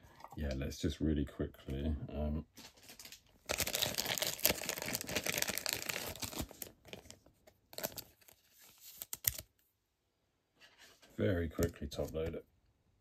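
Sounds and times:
plastic crinkling and rustling: 2.6 - 9.5.

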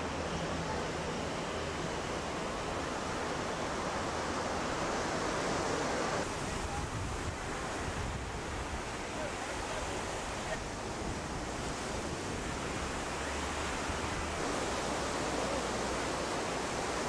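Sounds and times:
ocean surf on a beach: 0.0 - 17.0.

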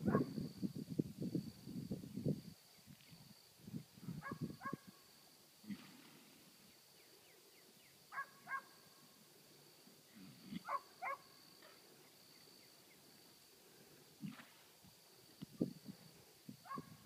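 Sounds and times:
dog barking: 0.0 - 0.3, 4.2 - 4.8, 8.1 - 8.8, 10.6 - 11.3, 16.6 - 16.9.

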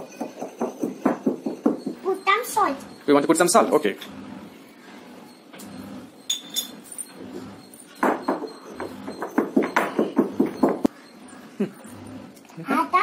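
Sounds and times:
stone pestle pounding in mortar: 0.0 - 2.0.

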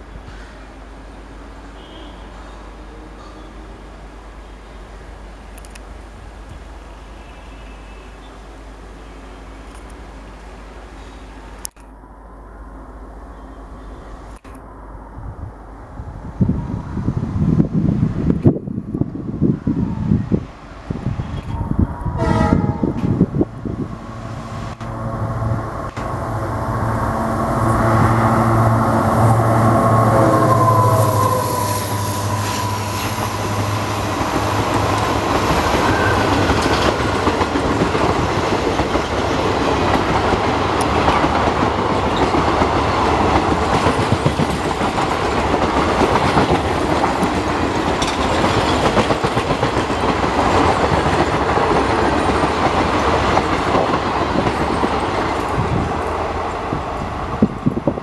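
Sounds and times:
train horn blast: 1.7 - 3.5, 21.5 - 23.3, 24.2 - 36.6
diesel locomotive engine throbbing: 20.9 - 58.0
coaches rolling clickety-clack: 34.2 - 56.1.

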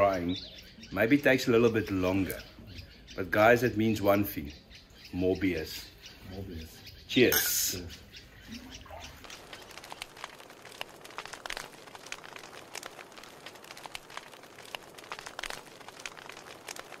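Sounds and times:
faint irregular crackling: 7.3 - 17.0.

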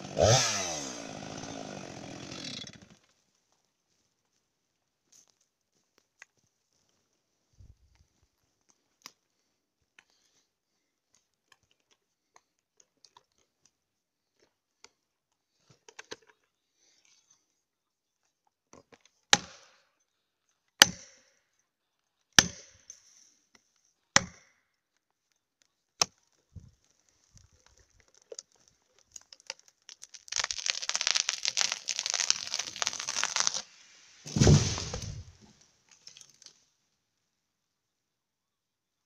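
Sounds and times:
tree cracking and crashing: 0.2 - 2.9, 27.1 - 36.5
axe striking plastic wedge: 34.3 - 35.3
heavy low thud: 34.3 - 35.3.

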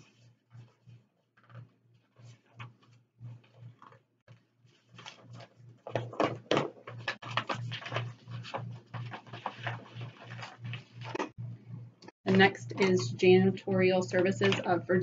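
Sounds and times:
paper rustling and crinkling: 0.0 - 11.3.

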